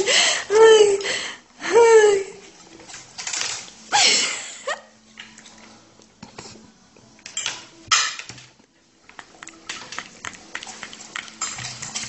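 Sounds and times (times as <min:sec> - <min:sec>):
cutlery clattering: 0:02.7 - 0:03.8, 0:07.2 - 0:08.5, 0:11.3 - 0:12.0.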